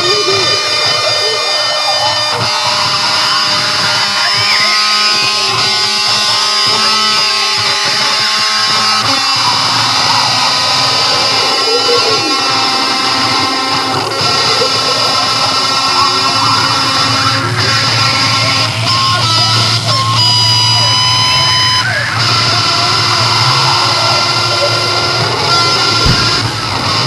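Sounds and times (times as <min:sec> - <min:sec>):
loud chaotic guitar music: 0:00.0 - 0:27.0
sustained held tones: 0:00.0 - 0:27.0.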